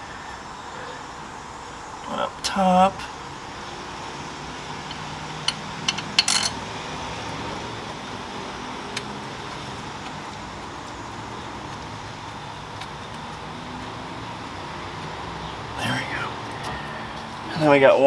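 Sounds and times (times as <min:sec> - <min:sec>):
steady fan hum: 0:00.0 - 0:18.0
metallic clinks of tools: 0:05.5 - 0:06.6.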